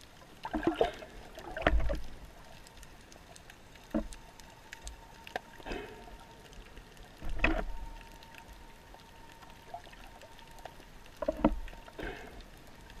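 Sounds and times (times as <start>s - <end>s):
underwater wash of water: 0.0s - 13.0s
faint clicks: 0.1s - 13.0s
bubbly gurgles: 0.4s - 2.3s.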